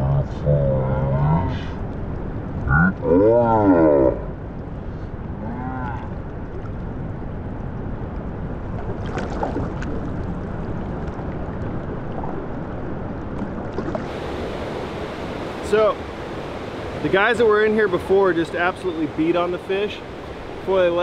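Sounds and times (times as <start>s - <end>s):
river rushing over riffles: 8.9s - 21.0s.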